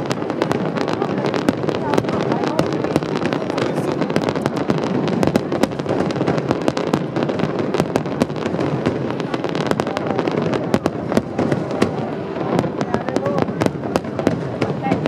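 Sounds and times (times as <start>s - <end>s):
fireworks bangs and crackles: 0.0s - 15.0s.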